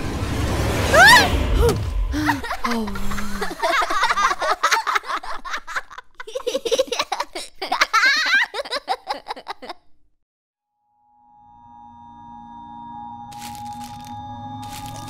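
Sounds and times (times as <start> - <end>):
cartoon babies giggling: 2.2 - 10.0.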